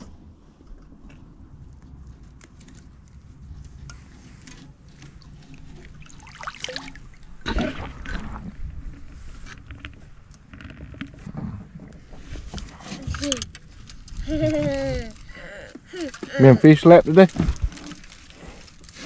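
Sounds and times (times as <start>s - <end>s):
water splashing: 5.2s - 9.1s.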